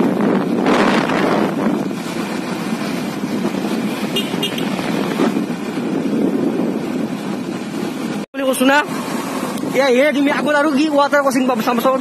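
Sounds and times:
motorcycle engine and tyre noise: 0.0s - 12.0s
wind rush on microphone: 0.0s - 12.0s.

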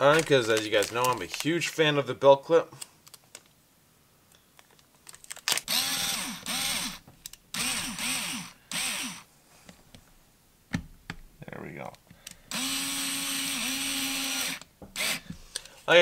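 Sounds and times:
electric screwdriver whirring: 5.5s - 9.3s, 12.5s - 15.3s.

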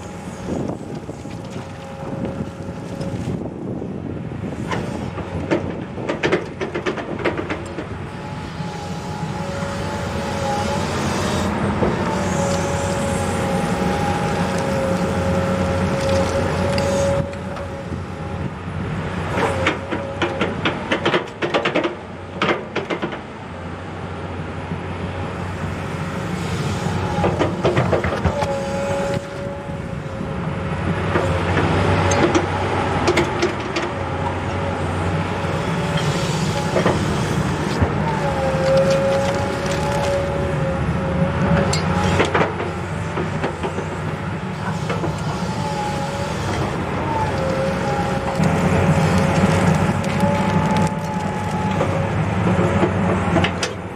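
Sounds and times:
diesel engine under load: 0.0s - 53.9s
high hydraulic whine: 7.6s - 18.6s, 31.1s - 52.4s.

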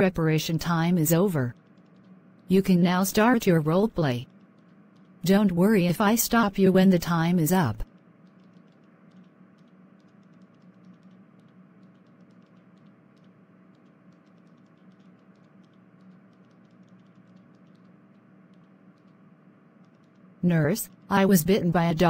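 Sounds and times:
steady low hum: 0.0s - 22.0s
light irregular clicks: 7.8s - 19.2s.

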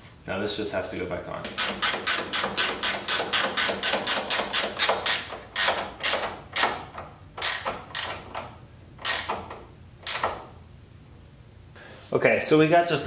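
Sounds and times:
ratchet wrench clicking: 1.5s - 6.8s, 7.4s - 10.4s.

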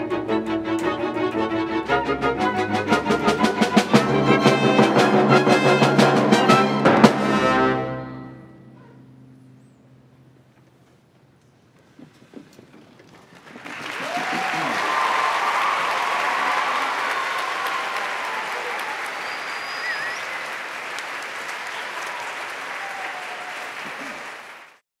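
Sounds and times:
audience applauding: 12.3s - 24.8s
audience cheering: 13.4s - 24.8s.

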